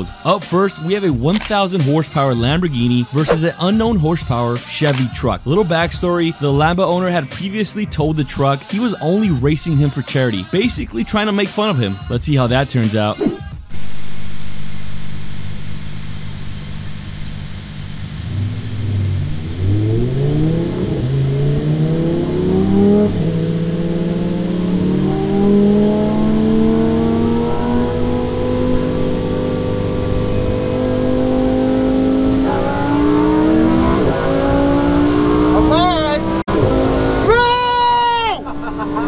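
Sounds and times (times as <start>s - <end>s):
sports car engine accelerating: 14.7s - 39.0s.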